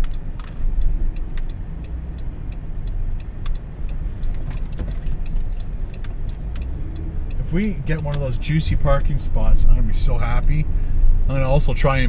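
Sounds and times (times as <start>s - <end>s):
faint ticks: 0.0s - 8.3s
engine and road rumble: 0.0s - 12.0s.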